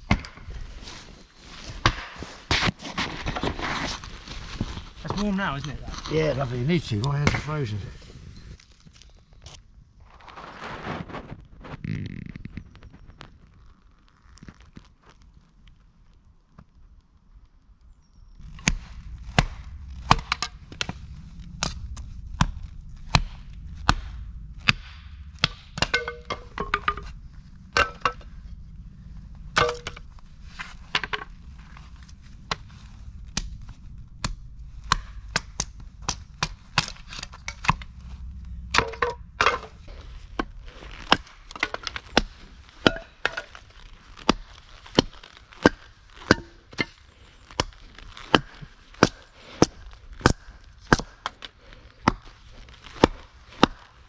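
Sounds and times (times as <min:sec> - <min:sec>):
hatchet chopping wood: 0:48.3 - 0:51.4, 0:52.9 - 0:53.9.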